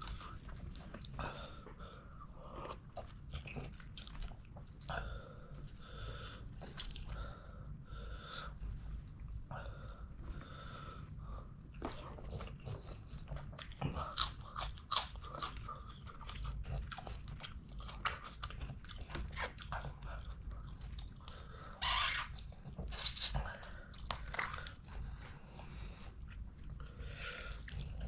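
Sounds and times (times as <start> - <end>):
person chewing: 0.0 - 7.8, 10.9 - 28.0.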